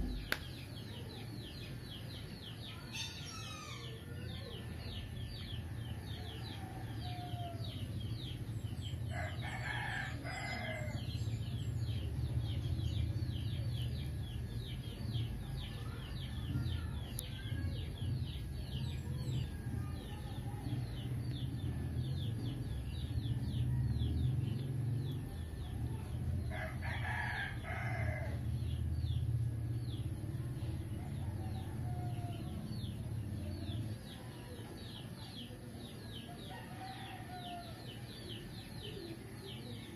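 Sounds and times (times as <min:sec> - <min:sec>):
steady low hum: 0:00.0 - 0:02.4, 0:05.1 - 0:34.6
rooster crowing: 0:36.5 - 0:37.8.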